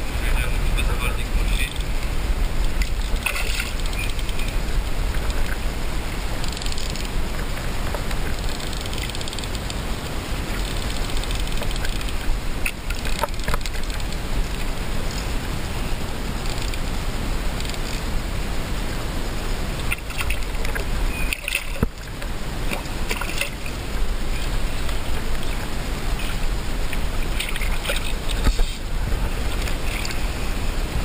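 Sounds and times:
river water rushing: 0:00.0 - 0:31.0
fish splashing at surface: 0:02.6 - 0:05.6, 0:19.8 - 0:23.8, 0:24.4 - 0:28.9.

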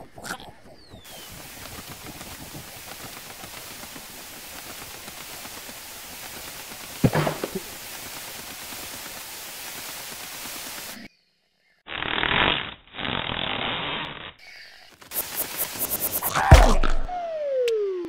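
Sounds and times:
rushing hiss of wind: 0:01.1 - 0:11.0
falling sound effect: 0:16.2 - 0:18.0.

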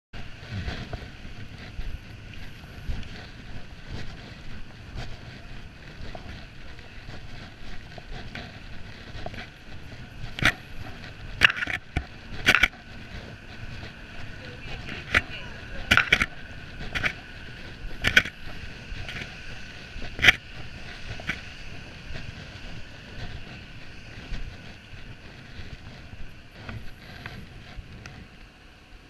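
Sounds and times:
faint footsteps: 0:00.2 - 0:28.6
vehicle engines rumbling: 0:00.2 - 0:28.7
wind on microphone: 0:00.2 - 0:29.0.

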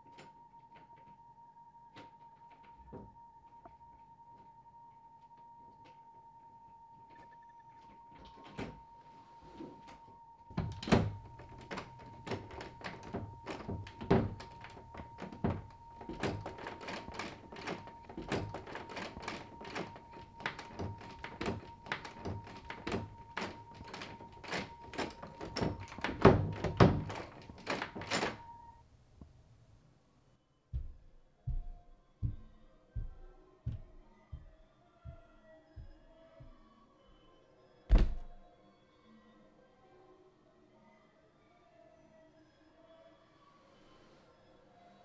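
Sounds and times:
knocking and banging on door: 0:10.5 - 0:28.6, 0:30.8 - 0:34.5, 0:37.9 - 0:38.4.

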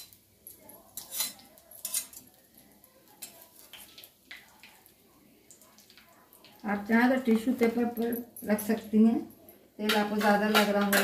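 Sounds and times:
utensils and dishes clinking: 0:00.0 - 0:02.4, 0:09.8 - 0:11.0.

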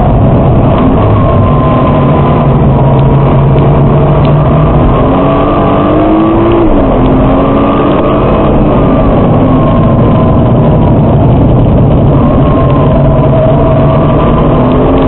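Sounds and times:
car engine accelerating: 0:00.0 - 0:15.0
road and wind noise: 0:00.0 - 0:15.0.

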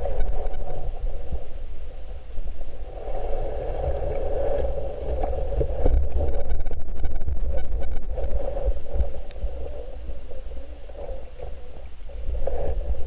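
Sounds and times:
muffled underwater stream rushing: 0:00.0 - 0:13.0
faint clicks: 0:08.9 - 0:09.4.

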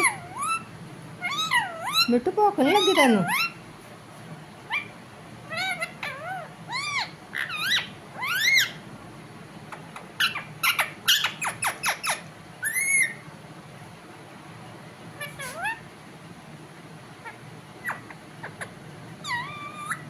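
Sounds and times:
parakeet chirping: 0:00.0 - 0:03.6, 0:04.6 - 0:08.9, 0:09.6 - 0:13.2, 0:15.2 - 0:15.9, 0:17.2 - 0:20.0.

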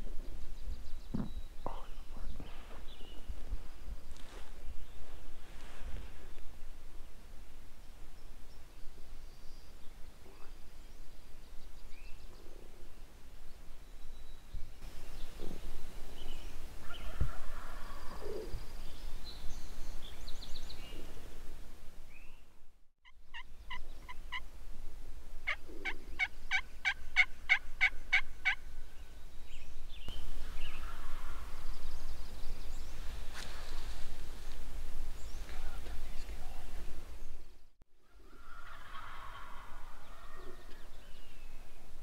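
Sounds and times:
clear evenly spaced turkey calls: 0:23.0 - 0:24.6, 0:25.4 - 0:29.2, 0:38.1 - 0:41.7
turkeys gobbling: 0:25.4 - 0:28.6, 0:38.2 - 0:40.7.

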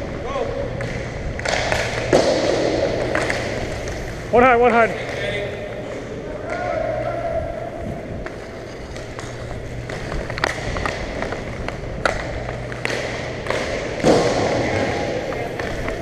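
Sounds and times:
low hum: 0:00.0 - 0:16.0
skate wheels rolling rumble: 0:00.0 - 0:16.0
hockey sticks and puck clacking: 0:00.7 - 0:07.2, 0:08.2 - 0:16.0.

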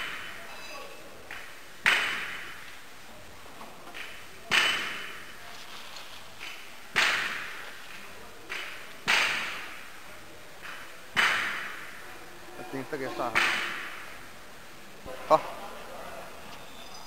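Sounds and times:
hammering echoing in a hall: 0:00.0 - 0:02.7, 0:03.8 - 0:05.3, 0:06.4 - 0:09.9, 0:10.6 - 0:12.1, 0:13.3 - 0:14.1.

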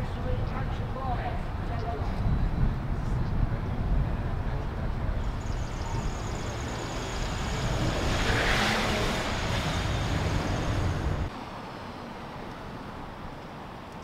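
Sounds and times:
car driving past: 0:05.2 - 0:11.3.

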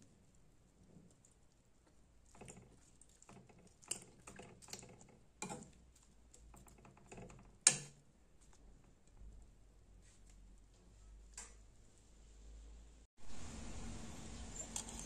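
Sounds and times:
ladle clinking and scraping wok: 0:03.9 - 0:05.8, 0:14.4 - 0:15.0.

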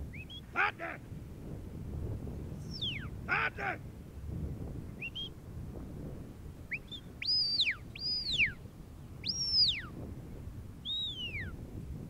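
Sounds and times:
person whistling commands: 0:02.7 - 0:03.1.

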